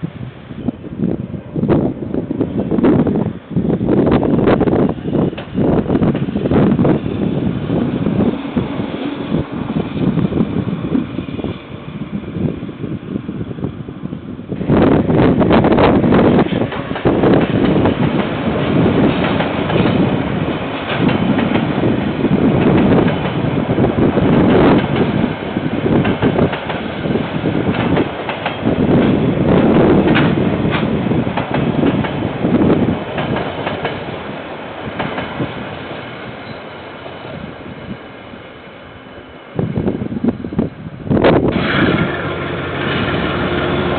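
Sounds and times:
train wheels rumbling on rail: 0.0s - 43.9s
wheels clicking over rail joints: 16.2s - 37.4s.

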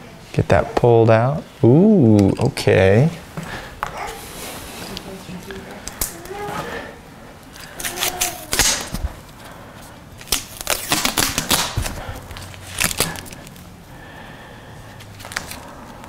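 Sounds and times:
wires rubbing: 7.4s - 13.7s.

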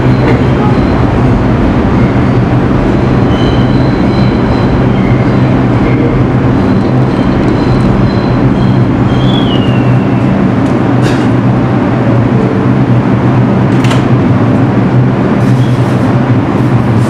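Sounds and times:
high wheel squeals: 0.0s - 10.5s
subway train rumbling: 0.0s - 17.0s.

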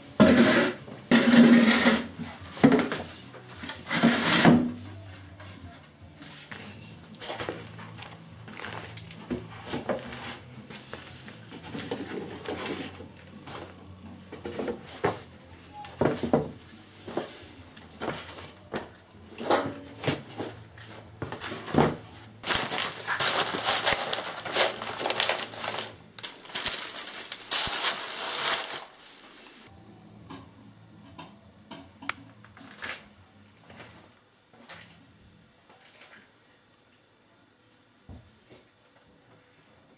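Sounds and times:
plastic bags crinkling: 22.4s - 29.6s.

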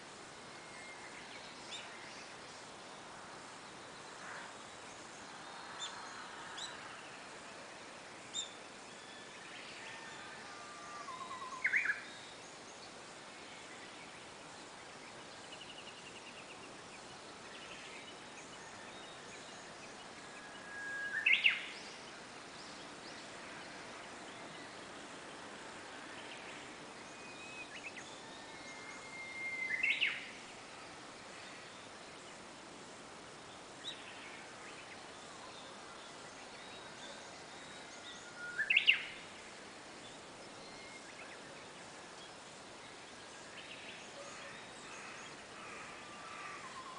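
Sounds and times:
bird singing whistled song: 11.0s - 12.3s, 20.3s - 21.9s, 27.0s - 30.3s, 36.5s - 39.2s, 40.6s - 41.4s.

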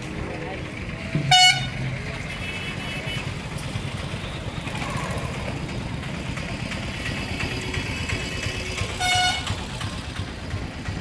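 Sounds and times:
vehicle engine running: 0.0s - 11.0s
distant car horns: 1.2s - 3.5s, 8.8s - 9.8s.

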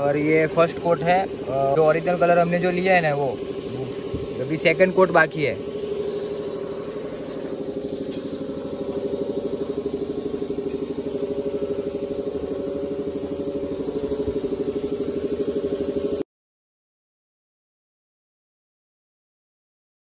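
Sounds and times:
motor running with fast pulse: 0.0s - 16.2s.

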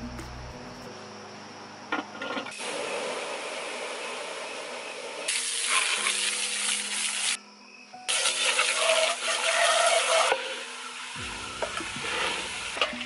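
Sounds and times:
water spray hissing on hot coals: 2.5s - 7.4s, 8.1s - 13.0s.

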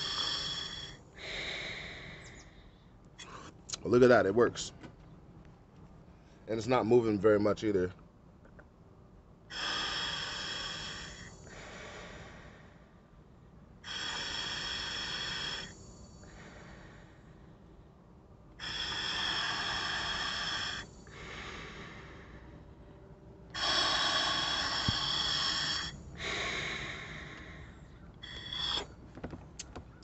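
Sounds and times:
hissing breaths through regulator: 0.0s - 2.6s, 9.5s - 12.9s, 13.8s - 17.4s, 18.6s - 22.5s, 23.5s - 29.7s
quieter breaths: 0.0s - 3.6s, 6.0s - 6.5s, 9.4s - 30.0s.

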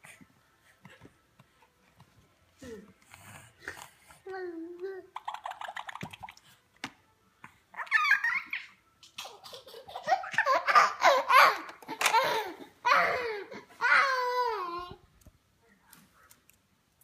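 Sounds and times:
baby giggling: 7.8s - 13.4s.

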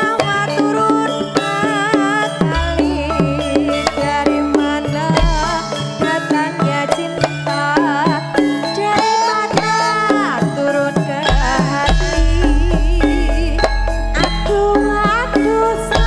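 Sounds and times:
keyboard and gamelan pop music: 0.0s - 16.0s
woman singing with vibrato: 0.0s - 16.0s
hand drum strokes: 11.1s - 16.0s.

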